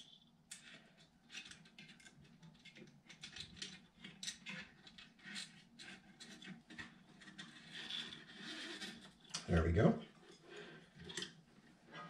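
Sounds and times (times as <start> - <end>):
cables scratching on metal: 3.4 - 12.0.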